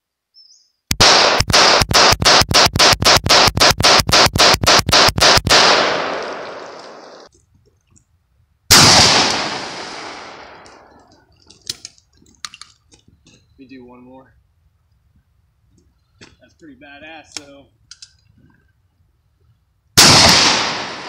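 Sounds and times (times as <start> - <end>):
shotgun blast with echo: 0.9 - 7.0, 8.7 - 10.6, 20.0 - 21.0
rapid pistol shots with echo: 0.9 - 7.1, 8.7 - 10.9, 20.0 - 21.0.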